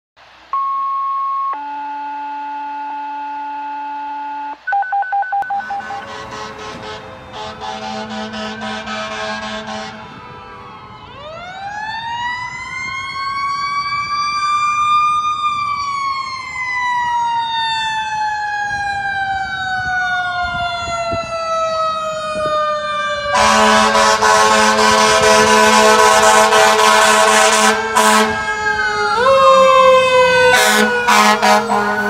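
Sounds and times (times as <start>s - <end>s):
fire engine siren wailing: 0.5s - 4.6s, 5.4s - 32.0s
air horn blasts: 5.4s - 10.8s, 23.3s - 28.6s, 29.3s - 32.0s.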